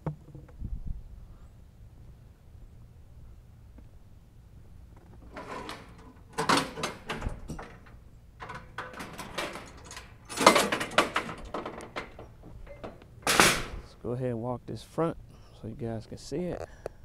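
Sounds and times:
metal mesh gate clanking: 5.1s - 14.0s.

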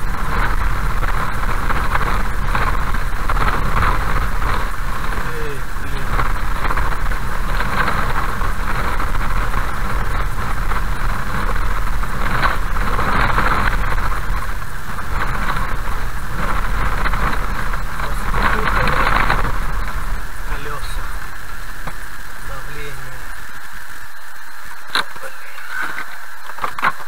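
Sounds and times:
car engine hum: 0.0s - 27.0s
tyres on gravel: 0.0s - 27.0s.

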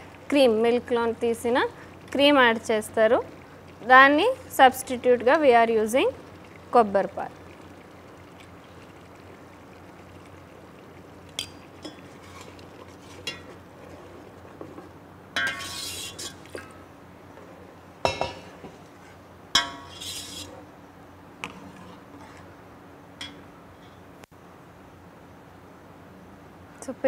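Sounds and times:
ladle clinking in metal pot: 15.4s - 16.4s, 19.6s - 20.4s.

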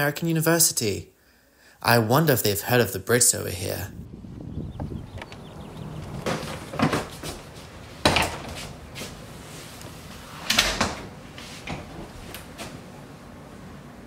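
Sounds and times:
front door opening and closing: 4.4s - 14.0s
suitcase wheels rolling: 5.0s - 8.8s.

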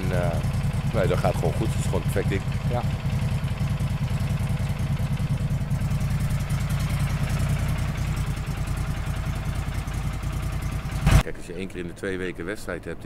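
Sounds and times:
machine engine running: 0.0s - 11.2s.

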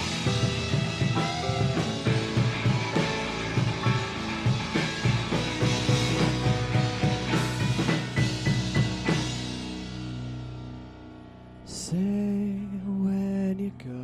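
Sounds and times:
drum kit beat: 0.0s - 10.8s
instrumental band music: 0.0s - 11.2s.

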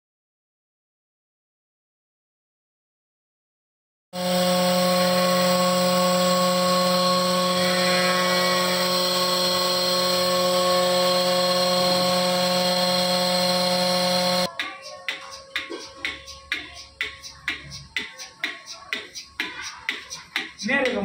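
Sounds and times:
vacuum pump motor humming: 4.2s - 14.5s.

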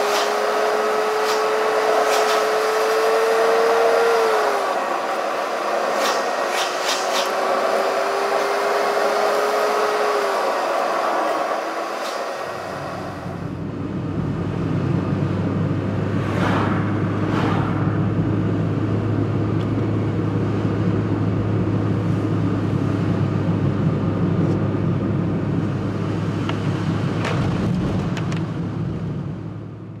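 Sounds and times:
car engine drone: 0.0s - 30.0s
road and tyre noise: 0.0s - 30.0s
brief sharper sounds: 5.9s - 7.4s.

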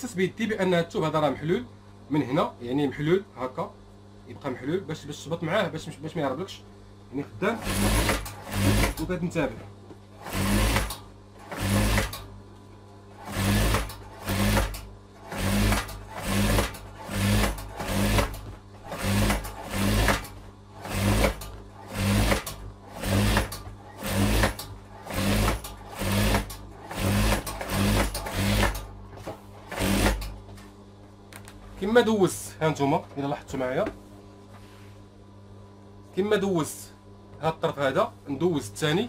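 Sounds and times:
faint motor hum: 0.0s - 39.0s
sewing machine stitching: 7.6s - 9.1s, 10.2s - 12.3s, 13.2s - 28.9s, 29.6s - 30.3s.

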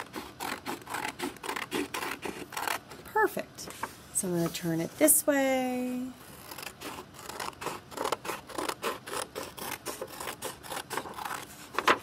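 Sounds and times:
scissors snipping paper: 0.0s - 2.8s, 6.3s - 12.0s.

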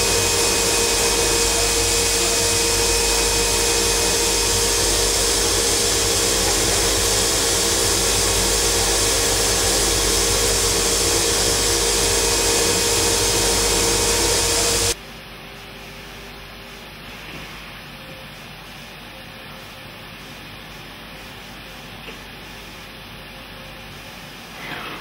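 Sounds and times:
grinding wheel hissing: 0.0s - 15.0s
machine hum: 0.0s - 15.6s.

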